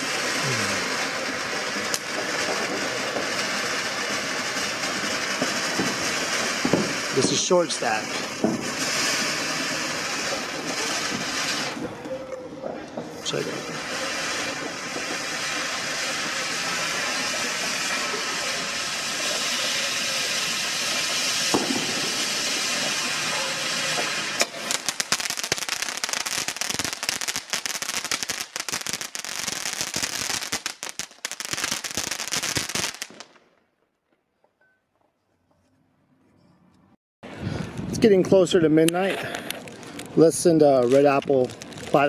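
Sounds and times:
firework fountain hissing: 0.0 - 33.4, 37.2 - 42.0
firework rapid crackling: 0.0 - 33.8, 37.3 - 42.0.

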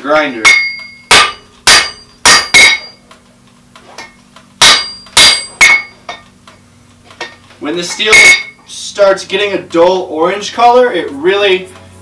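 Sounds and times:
hammer striking metal on anvil: 0.4 - 3.0, 4.0 - 6.3, 7.2 - 8.6.

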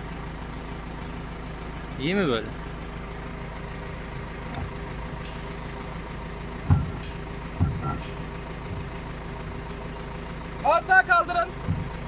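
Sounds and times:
diesel engine idling: 0.0 - 12.0
low knocks: 6.6 - 9.1, 11.6 - 12.0.

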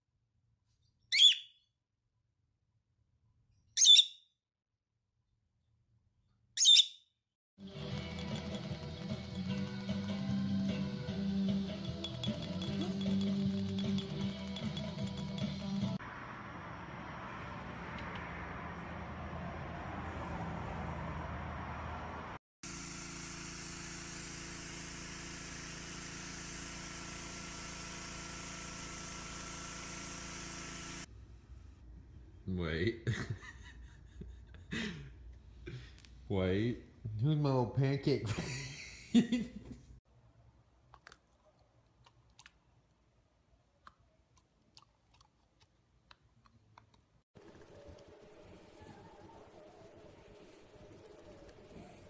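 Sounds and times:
pressure washer running: 7.6 - 15.9, 22.6 - 31.1.

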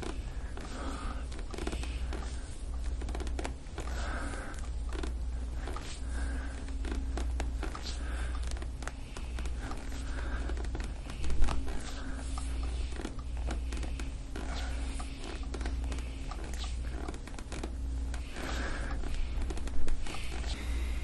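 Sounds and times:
low hum: 0.0 - 21.0
skin and clothing rubbing: 0.0 - 21.0.

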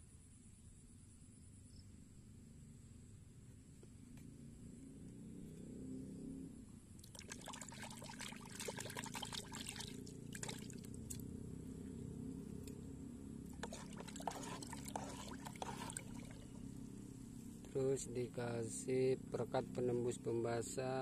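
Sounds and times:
water sloshing in tub: 7.0 - 11.3, 13.5 - 16.7.

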